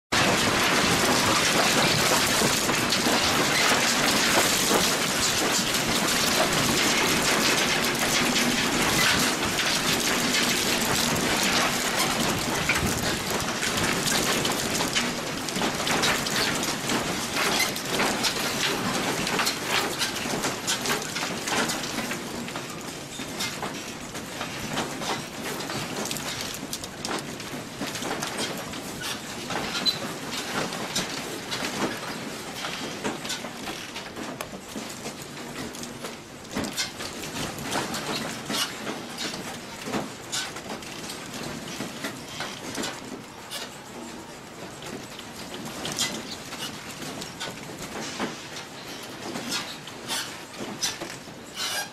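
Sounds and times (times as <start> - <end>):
house rattling in earthquake: 0.1 - 51.5.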